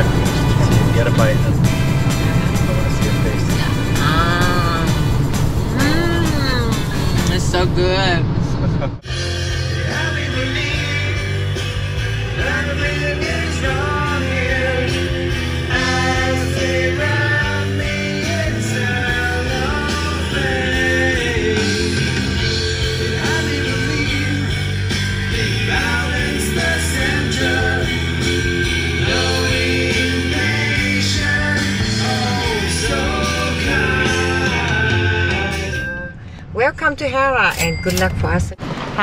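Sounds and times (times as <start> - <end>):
rock song with singing: 9.1 - 36.3.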